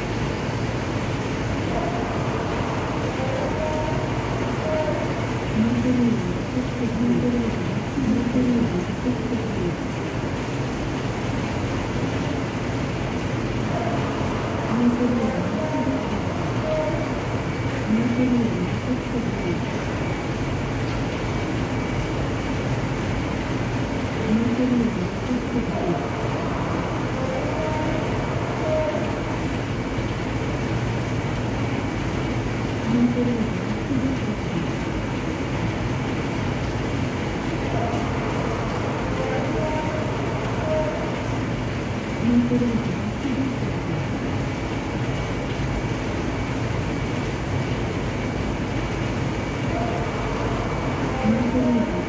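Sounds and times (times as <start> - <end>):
heavy rain on concrete: 0.0 - 52.0.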